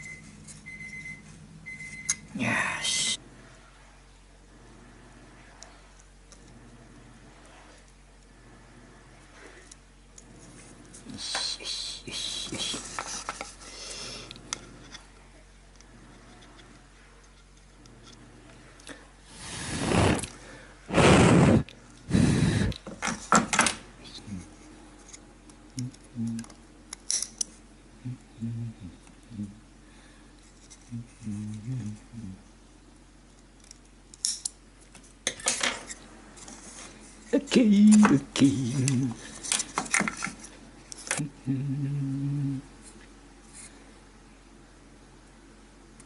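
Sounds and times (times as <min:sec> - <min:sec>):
man murmuring: 0:11.1 - 0:13.0, 0:25.8 - 0:26.5, 0:28.0 - 0:29.6, 0:30.9 - 0:32.5, 0:37.4 - 0:39.3, 0:41.2 - 0:42.7.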